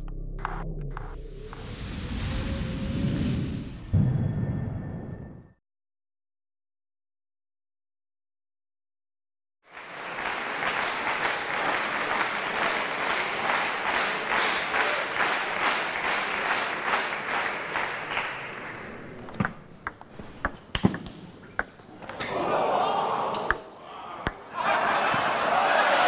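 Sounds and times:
crowd applauding: 9.7 - 19.1, 22.3 - 26.0
table tennis ball clicks: 19.1 - 22.2.

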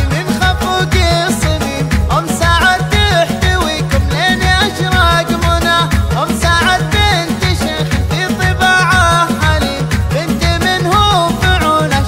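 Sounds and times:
low drum beat: 0.0 - 12.0.

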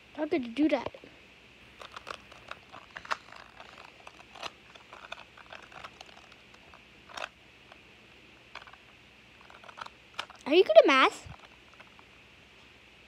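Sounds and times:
puzzle cube clicking: 1.8 - 7.8, 8.5 - 8.8, 9.4 - 10.4.

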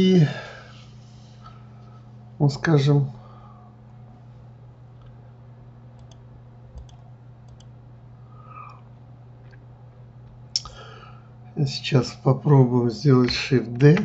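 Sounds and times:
low electrical hum: 0.0 - 14.0
computer mouse clicks: 6.0 - 6.2, 6.8 - 7.7.

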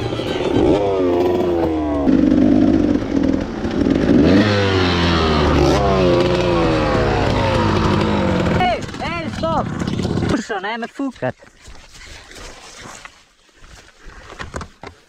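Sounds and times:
dirt bike engine revving: 0.0 - 10.6.

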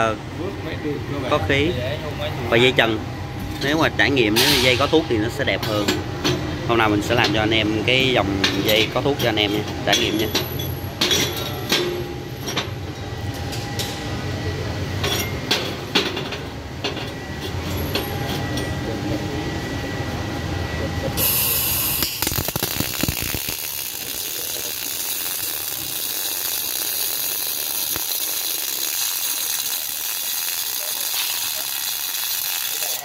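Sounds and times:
welding arc crackling and hissing: 21.2 - 33.0.

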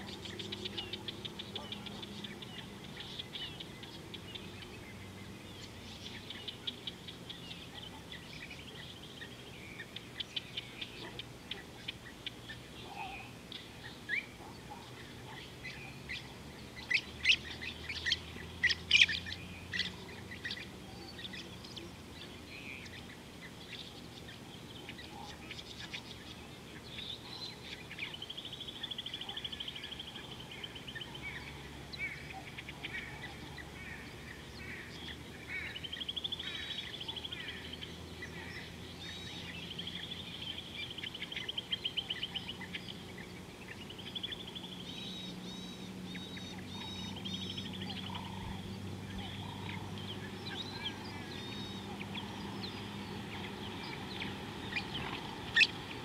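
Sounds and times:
bird chirps: 0.0 - 56.0
bird rapid trill: 44.0 - 56.0.

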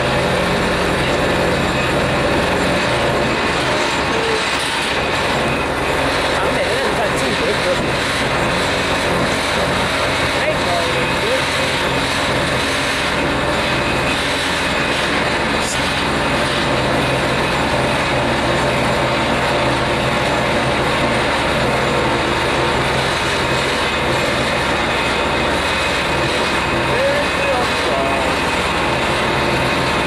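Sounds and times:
low engine drone: 0.0 - 30.0.

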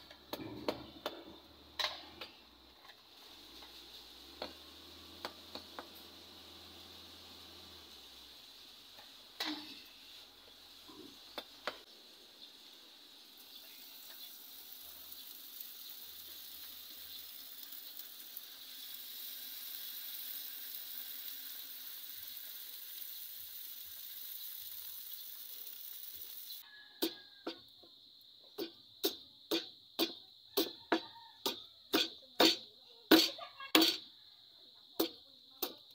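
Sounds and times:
hot blade hissing in water: 3.1 - 27.2.

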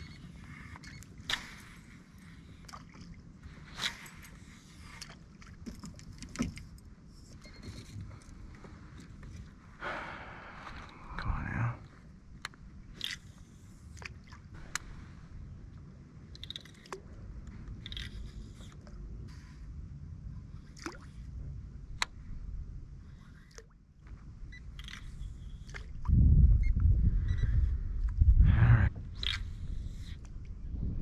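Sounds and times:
steady low rumble: 6.6 - 31.0.

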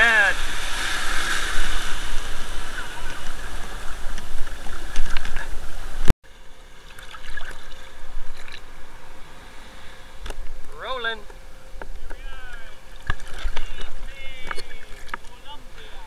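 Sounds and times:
surf washing in: 0.0 - 6.1
water splashing around legs: 6.9 - 8.7, 13.0 - 15.4.

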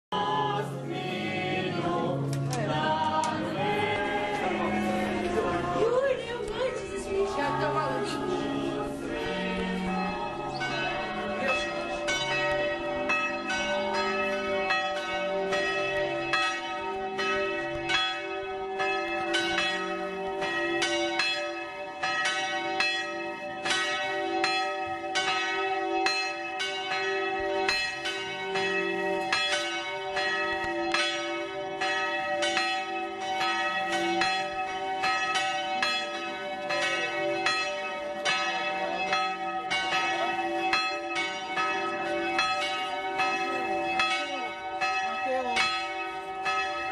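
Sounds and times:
church bells pealing: 0.2 - 46.9.

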